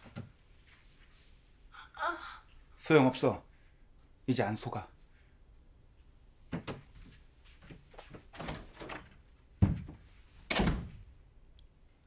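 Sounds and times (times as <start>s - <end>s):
soft knocks and rustles: 6.5s - 11.0s
door slamming shut: 10.5s - 11.0s.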